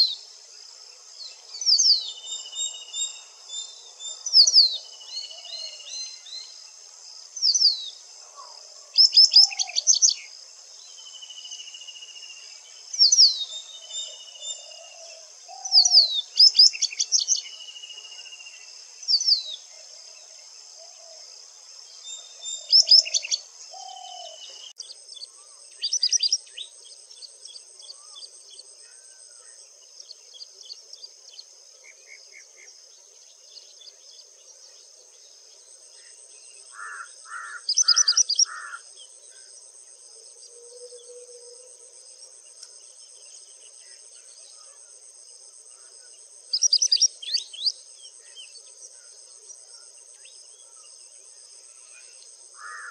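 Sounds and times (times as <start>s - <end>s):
high insect drone: 0.0s - 52.9s
bird singing whistled notes: 1.5s - 6.6s, 9.0s - 10.3s, 12.9s - 17.8s, 22.0s - 28.3s, 46.5s - 48.6s.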